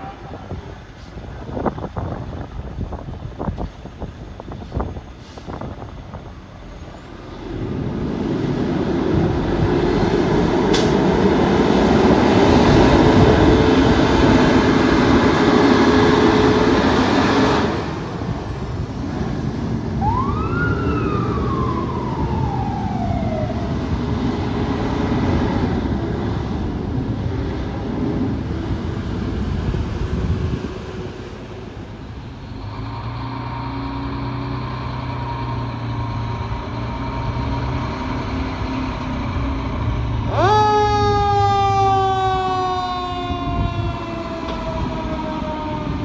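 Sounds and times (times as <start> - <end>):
diesel truck engine pulling hard: 0.4 - 40.5
siren wail: 19.9 - 24.2, 40.2 - 46.0.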